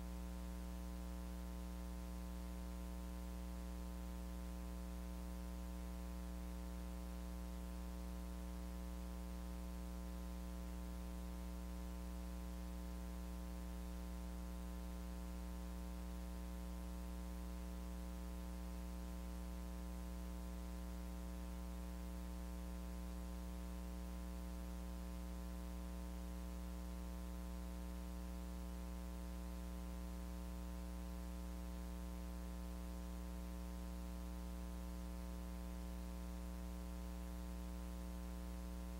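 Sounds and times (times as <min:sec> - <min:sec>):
electrical mains hum: 0:00.0 - 0:38.9.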